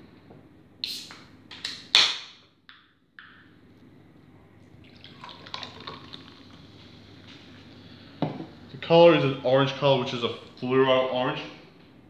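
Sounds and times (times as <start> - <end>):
soda pouring and fizzing: 4.7 - 8.8.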